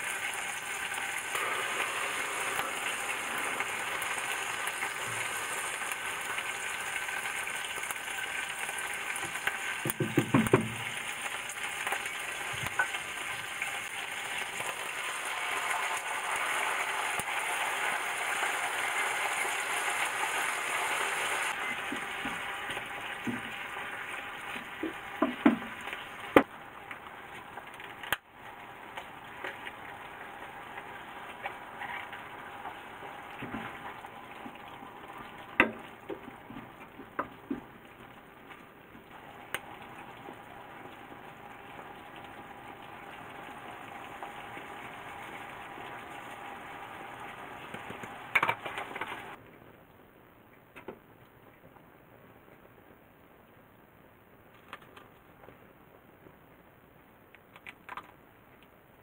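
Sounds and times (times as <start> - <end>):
sauce sizzling in frying pan: 0.0 - 36.5, 39.1 - 49.4.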